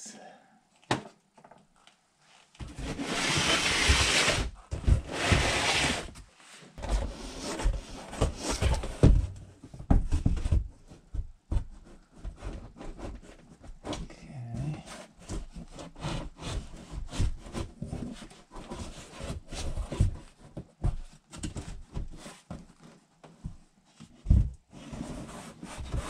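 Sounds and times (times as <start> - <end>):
cardboard scraping car underbody: 2.6 - 6.2.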